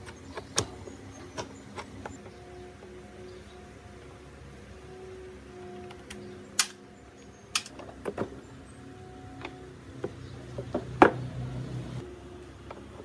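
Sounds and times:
tools clicking and knocking: 0:07.5 - 0:08.3.

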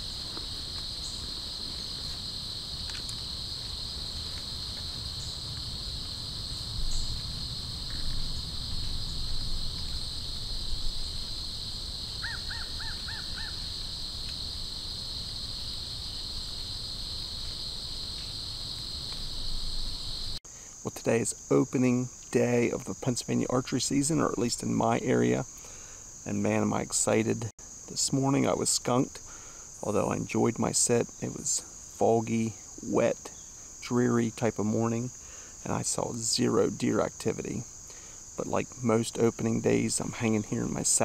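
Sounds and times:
crickets trilling: 0:00.0 - 0:41.0
birds calling: 0:12.1 - 0:13.9.

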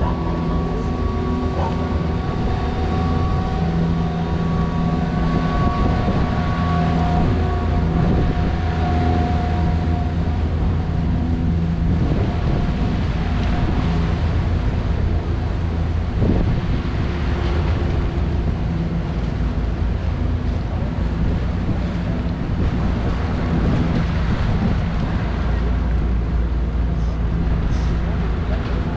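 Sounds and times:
motor boat engine hum: 0:00.0 - 0:28.9
water wash: 0:00.0 - 0:28.9
wind buffeting microphone: 0:00.0 - 0:28.9.

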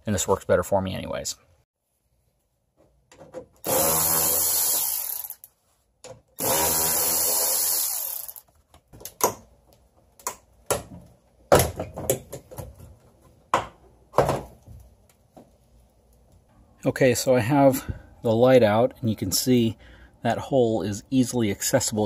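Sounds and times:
power tool spinning socket: 0:03.7 - 0:05.5, 0:06.4 - 0:08.5.

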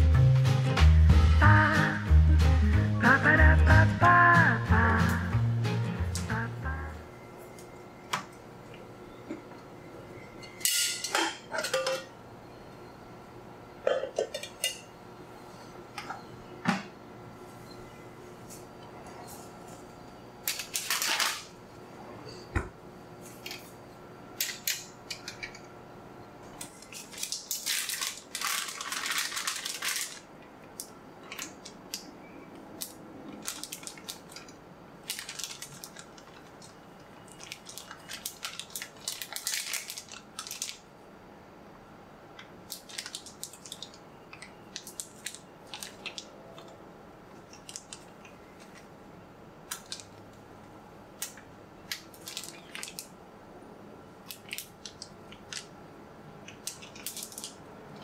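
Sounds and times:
plastic bag crinkling: 0:20.5 - 0:21.5, 0:26.7 - 0:30.3, 0:31.2 - 0:32.1, 0:32.8 - 0:40.9, 0:42.7 - 0:46.8, 0:47.4 - 0:48.8, 0:49.7 - 0:50.2, 0:51.9 - 0:53.1, 0:54.3 - 0:55.7, 0:56.5 - 0:58.0.

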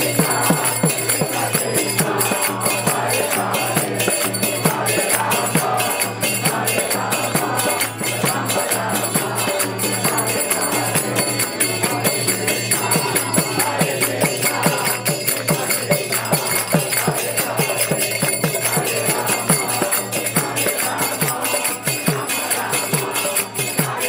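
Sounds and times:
drum beat: 0:00.0 - 0:24.0
hand cymbals ringing: 0:00.0 - 0:24.0.

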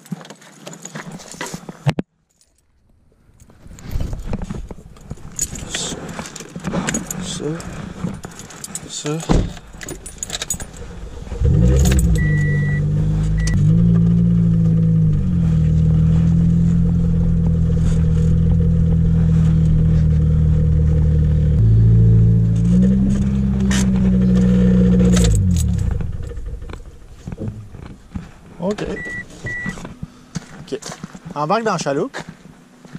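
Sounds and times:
car engine running: 0:09.6 - 0:30.5.

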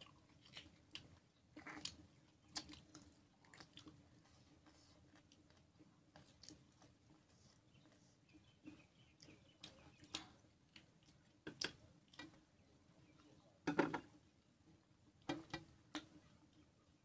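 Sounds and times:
chewing smacks: 0:00.0 - 0:08.0.

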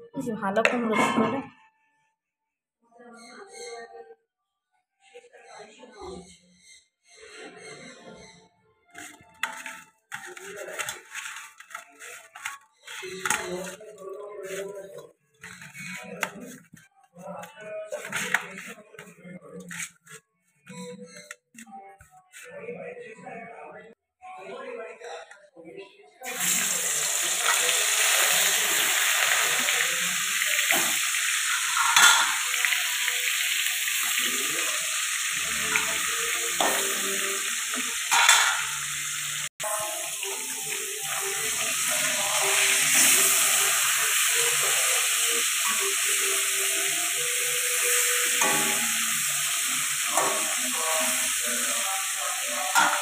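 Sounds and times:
fish frying in hot oil: 0:09.0 - 0:14.6, 0:26.3 - 0:53.0.

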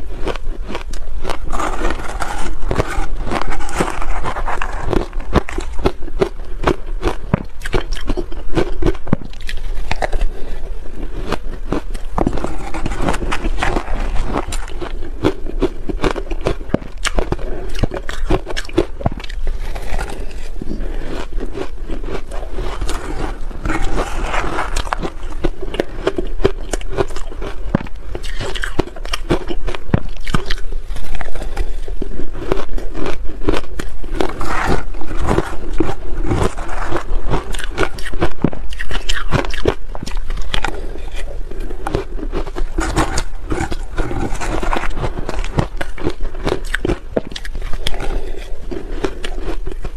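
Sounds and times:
shaved ice crunching: 0:00.7 - 0:06.3, 0:16.0 - 0:27.6, 0:32.4 - 0:38.1, 0:38.7 - 0:49.7
metal spoon scraping a bowl: 0:01.4 - 0:05.7.

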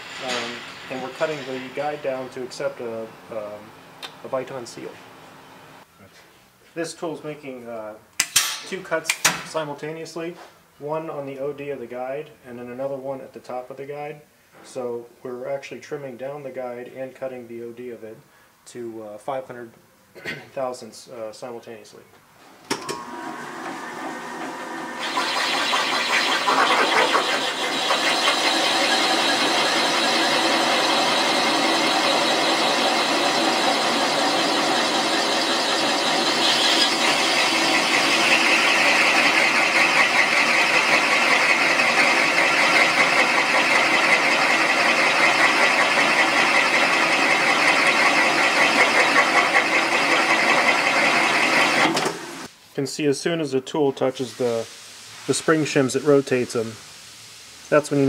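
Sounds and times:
cutter grinding metal: 0:23.0 - 0:52.2.

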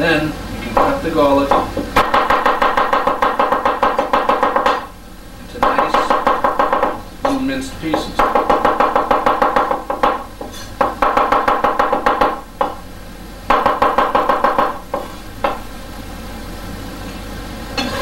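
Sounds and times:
cleaver chopping on wooden board: 0:00.7 - 0:04.9, 0:05.6 - 0:12.8, 0:13.5 - 0:15.6.

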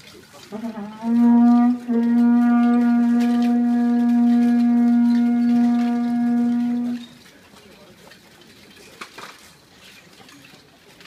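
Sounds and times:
conch-shell trumpet note: 0:00.4 - 0:07.2.

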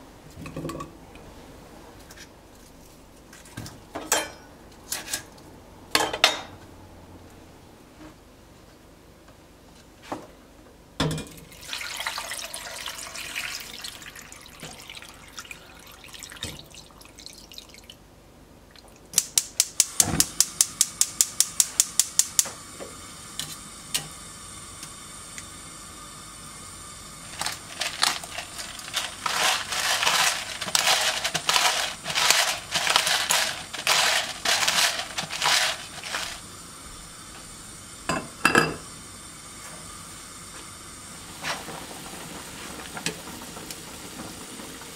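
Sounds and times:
water pouring into a pot: 0:11.4 - 0:18.0, 0:27.2 - 0:36.5
gas burner igniter clicking: 0:19.2 - 0:22.5
pepper grinder grinding: 0:27.3 - 0:36.4.

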